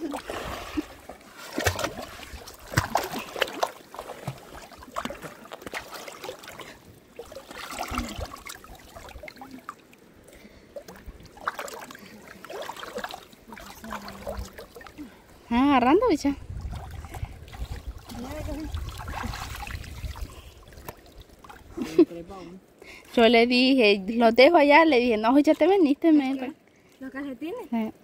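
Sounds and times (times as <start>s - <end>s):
river water splashing: 0.0s - 22.0s.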